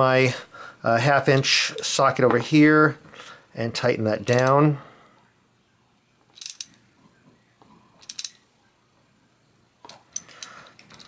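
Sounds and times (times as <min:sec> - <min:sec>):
socket ratchet clicking: 0:04.3 - 0:04.6, 0:06.3 - 0:06.8, 0:08.0 - 0:08.4.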